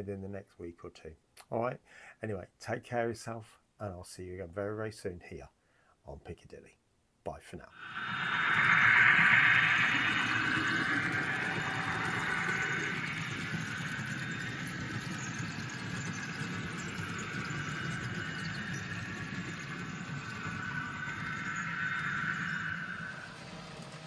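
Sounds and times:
model train running: 7.8s - 24.0s.

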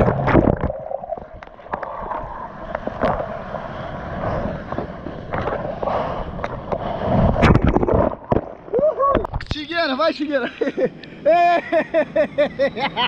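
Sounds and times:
water splashing and sloshing: 0.0s - 9.6s.

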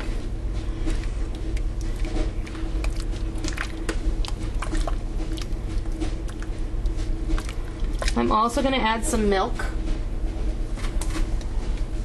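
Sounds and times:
wooden spoon stirring thick soup: 0.0s - 8.8s.

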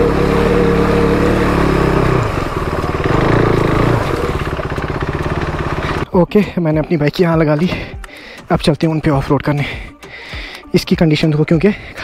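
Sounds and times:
motorcycle engine running: 0.0s - 6.2s.

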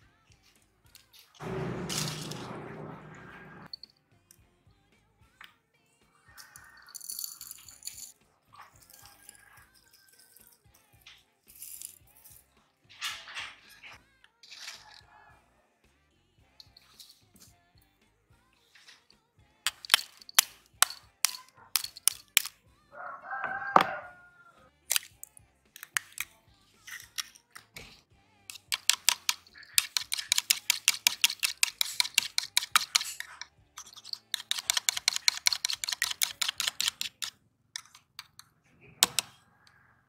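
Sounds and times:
whisk clicking against bowl: 28.5s - 37.9s.

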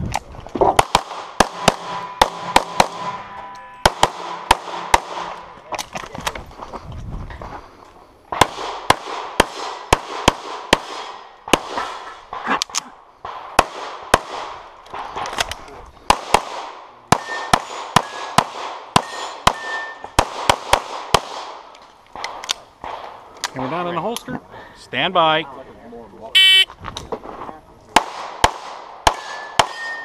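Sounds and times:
pistol shots: 0.8s - 3.2s, 3.8s - 5.4s, 8.3s - 12.4s, 16.1s - 23.2s, 28.0s - 30.0s.

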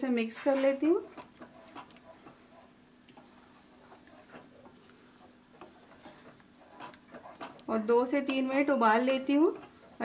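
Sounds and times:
spatula scraping metal pan: 0.3s - 1.9s, 3.2s - 7.6s.

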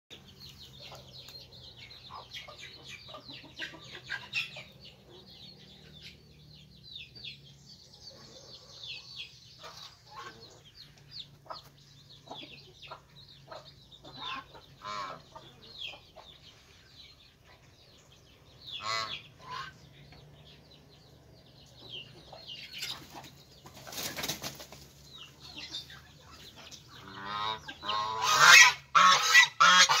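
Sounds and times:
small birds chirping: 0.1s - 30.0s
geese and ducks calling: 9.6s - 10.7s, 12.4s - 16.0s, 18.7s - 19.9s, 25.5s - 30.0s.

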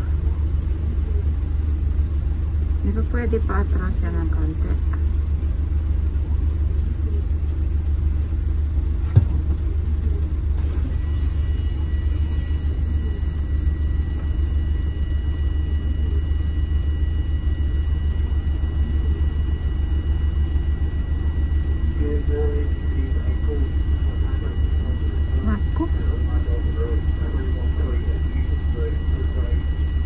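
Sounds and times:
bus engine idling: 0.0s - 30.0s
thin steady high tone: 11.0s - 30.0s.

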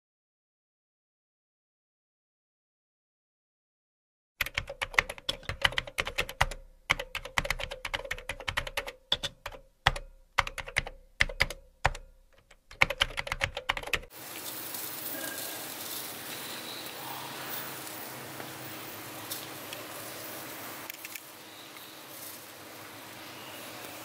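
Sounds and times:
steady hiss: 14.1s - 24.0s.

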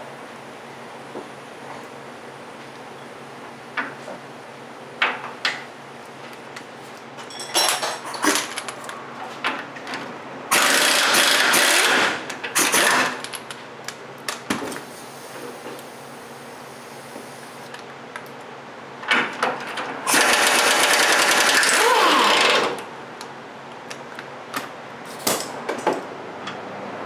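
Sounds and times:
pneumatic impact wrench bursts: 10.5s - 13.2s, 20.1s - 22.8s.

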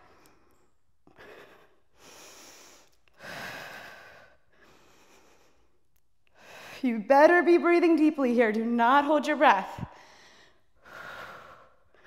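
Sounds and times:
woman breathing hard: 0.0s - 6.8s, 9.9s - 12.0s.

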